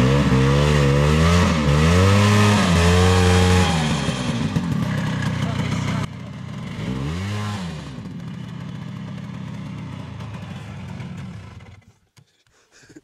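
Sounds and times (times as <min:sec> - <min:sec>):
snowmobile engine idling: 0:02.6 - 0:12.0.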